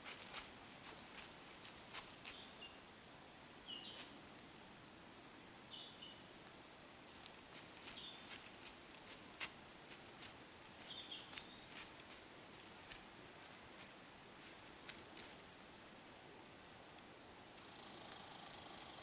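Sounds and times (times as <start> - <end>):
hooves stepping through dry leaves: 0.0 - 2.7, 7.0 - 15.4.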